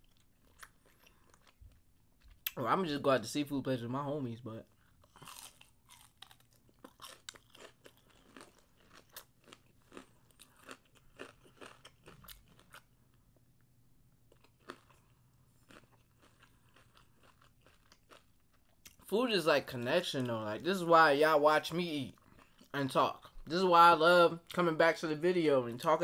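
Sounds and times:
chewing crunchy fried food: 0:00.0 - 0:02.6, 0:04.6 - 0:13.4, 0:14.2 - 0:19.1, 0:22.1 - 0:23.6.

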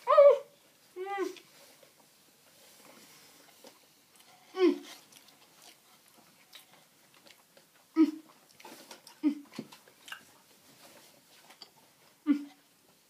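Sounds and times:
person chewing: 0:03.4 - 0:10.4.

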